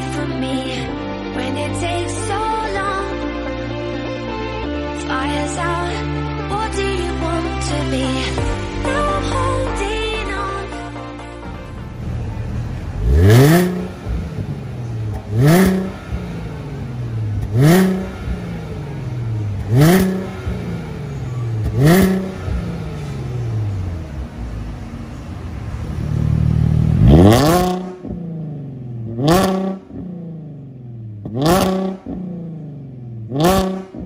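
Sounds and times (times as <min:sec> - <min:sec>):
car engine revving: 0:11.4 - 0:34.0.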